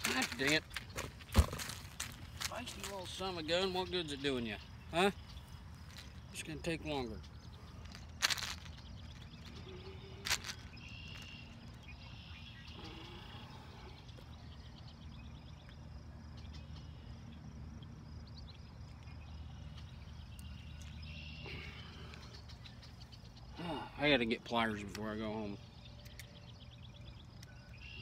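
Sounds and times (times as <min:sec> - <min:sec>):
insects trilling: 0:00.0 - 0:28.0
steady low hum: 0:00.0 - 0:28.0.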